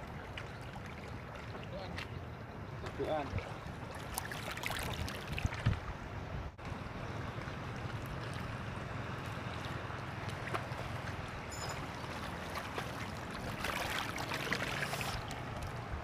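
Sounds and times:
water lapping: 0:00.0 - 0:16.0
wind on microphone: 0:04.7 - 0:06.6.

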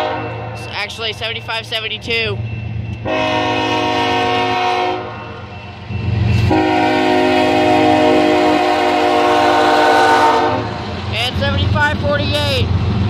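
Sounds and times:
locomotive air horn blasts: 0:00.0 - 0:00.4, 0:03.0 - 0:05.2, 0:06.3 - 0:10.8.

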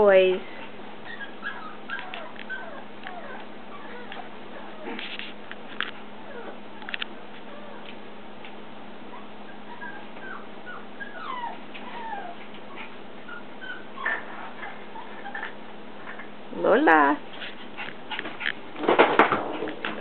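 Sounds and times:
puppies whimpering: 0:01.0 - 0:05.1, 0:06.2 - 0:07.9, 0:09.1 - 0:15.6.

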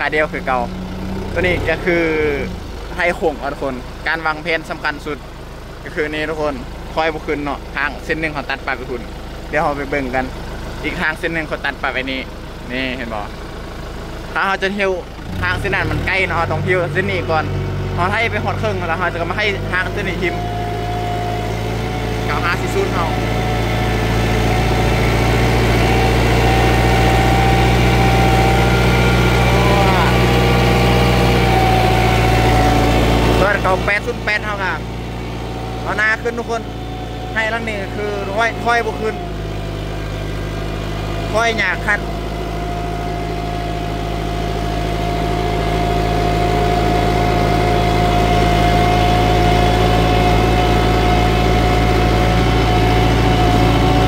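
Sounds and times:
tractor diesel engine running: 0:00.0 - 0:54.0
steady whine: 0:18.0 - 0:54.0.

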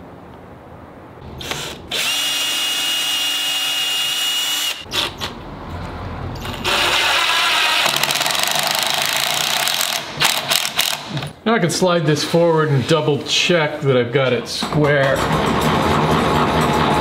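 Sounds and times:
cordless drill whining: 0:01.4 - 0:05.3, 0:06.6 - 0:11.0
drill clicks: 0:01.4 - 0:05.4, 0:06.6 - 0:11.3.

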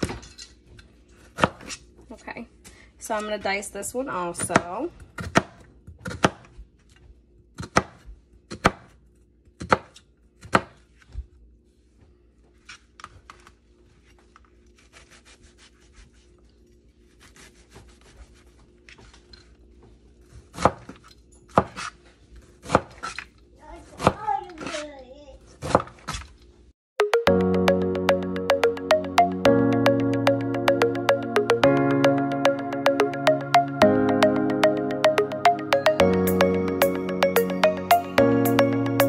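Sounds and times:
knife chopping on plastic board: 0:07.6 - 0:09.0, 0:09.6 - 0:10.8.

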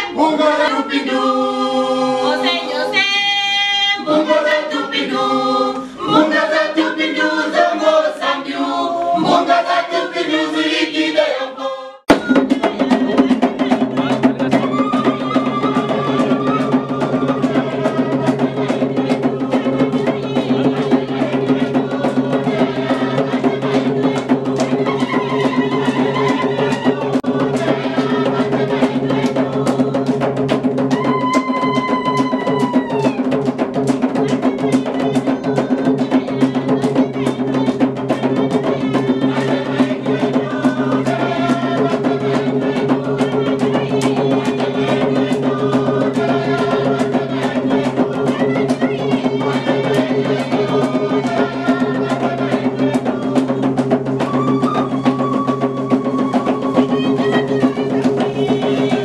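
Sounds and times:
group singing unaccompanied: 0:00.0 - 0:59.0
voices over drums: 0:00.0 - 0:59.0
hand-played wooden drums: 0:12.1 - 0:59.0.

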